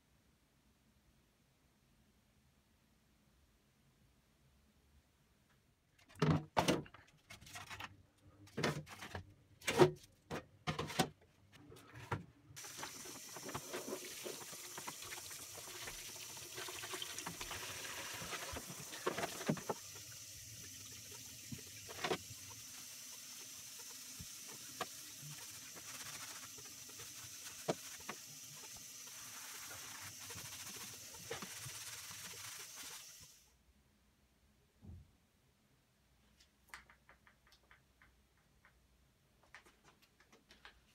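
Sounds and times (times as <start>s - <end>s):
water running into basin: 12.6s - 33.3s
sponge scrubbing metal parts: 12.6s - 33.4s.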